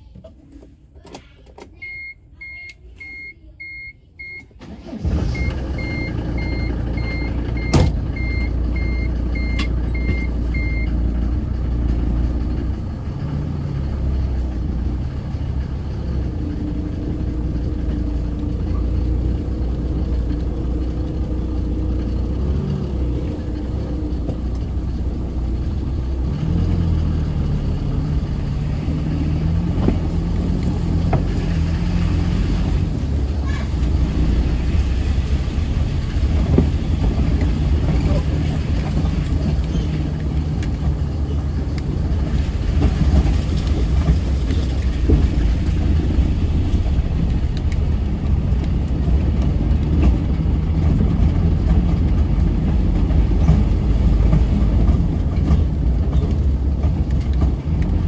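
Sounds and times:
short warning beeps: 1.8s - 4.5s, 5.4s - 10.9s
car engine running: 4.7s - 58.0s.

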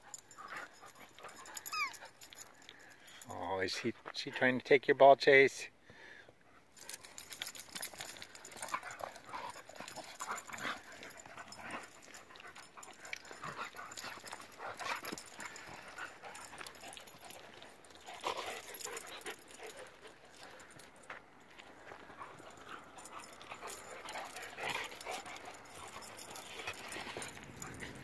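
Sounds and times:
dogs scuffling: 6.8s - 28.0s.

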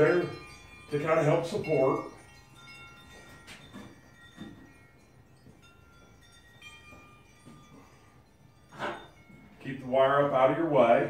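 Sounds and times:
wind chimes ringing: 0.0s - 11.0s
soft knocks: 3.2s - 4.8s.

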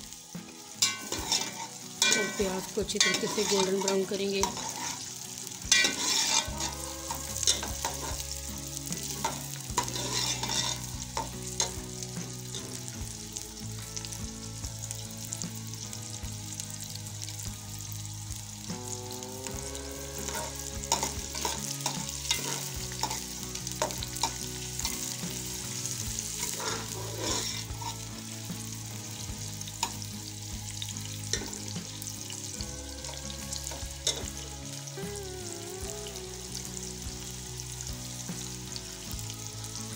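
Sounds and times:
onions sizzling in hot oil: 0.0s - 39.9s
metal ladle scraping pot: 0.8s - 8.2s, 9.2s - 11.8s, 20.2s - 25.0s, 25.8s - 28.0s.

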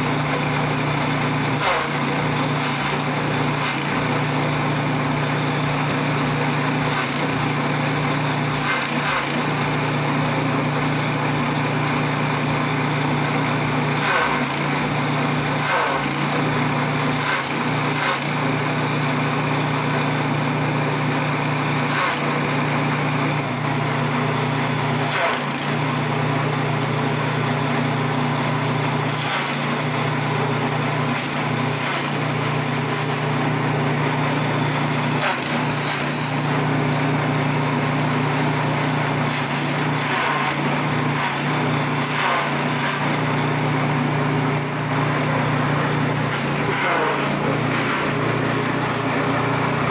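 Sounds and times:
chaff cutter engine drone: 0.0s - 49.9s.

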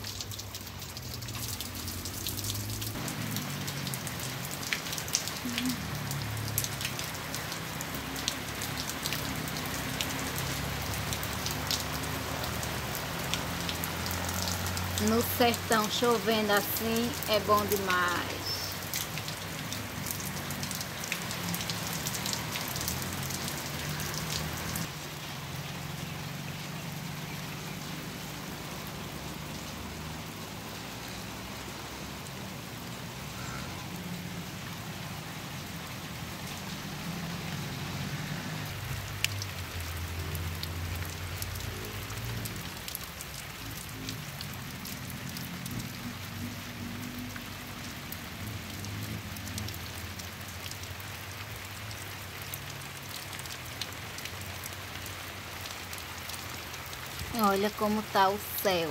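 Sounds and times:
rain falling on dirt ground: 0.0s - 58.9s.

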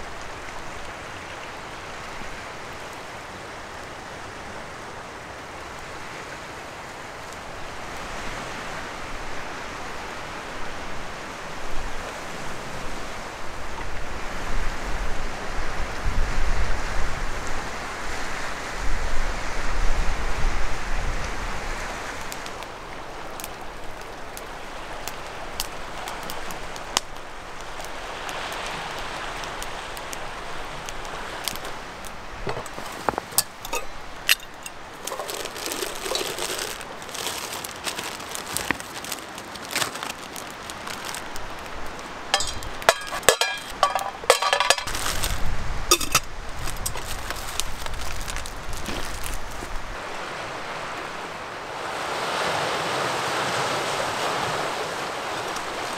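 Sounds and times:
wind gusting through trees: 0.0s - 55.9s
metal kettle knocking on rock: 32.4s - 35.2s, 42.4s - 44.9s, 45.9s - 46.3s.

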